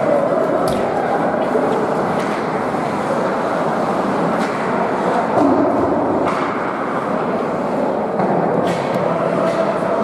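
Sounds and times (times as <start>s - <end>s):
skating and hall noise: 0.0s - 10.0s
hockey stick and puck clacks: 1.7s - 2.9s, 4.2s - 7.2s, 8.1s - 10.0s.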